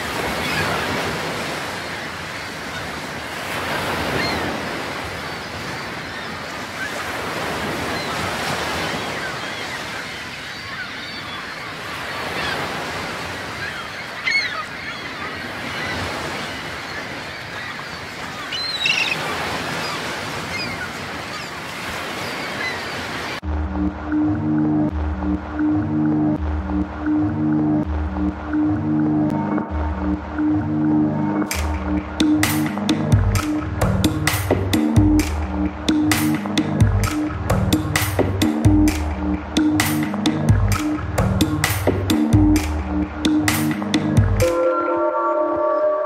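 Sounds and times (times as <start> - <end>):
ocean surf breaking on shore: 0.0 - 46.0
music: 23.4 - 46.0.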